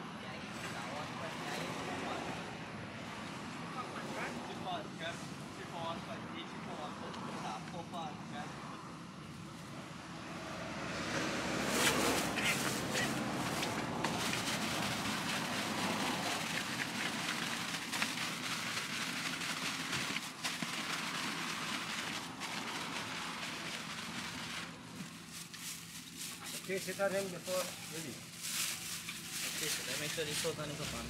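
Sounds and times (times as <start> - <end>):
plastic bag crinkling: 11.9 - 31.0.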